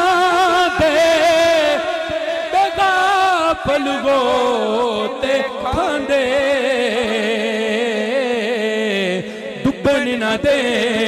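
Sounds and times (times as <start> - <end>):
man singing: 0.0 - 11.0.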